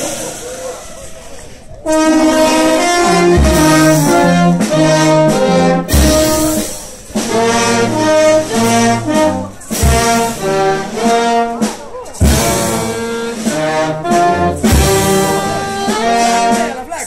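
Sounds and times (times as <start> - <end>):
brass band playing: 0.0 - 17.0.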